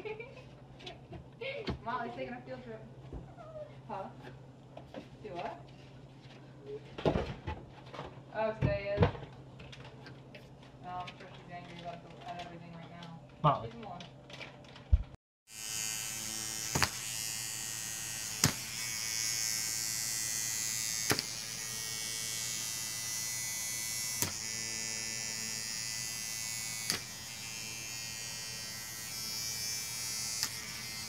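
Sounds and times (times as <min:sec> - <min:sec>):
small electric motor buzzing: 0:15.5 - 0:31.0.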